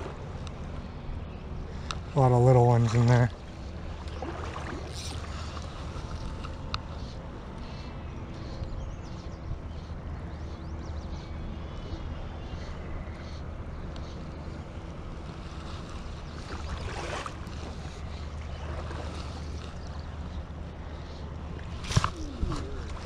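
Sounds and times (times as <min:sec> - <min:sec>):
wind rumbling on microphone: 0:00.0 - 0:23.0
creek water running: 0:02.1 - 0:07.0, 0:15.2 - 0:23.0.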